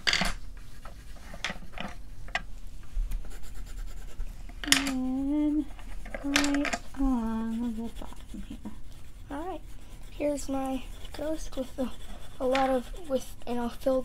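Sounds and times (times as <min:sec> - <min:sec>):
colored pencils scratching on paper: 0:00.1 - 0:02.0, 0:03.2 - 0:14.0
person humming: 0:04.6 - 0:08.7.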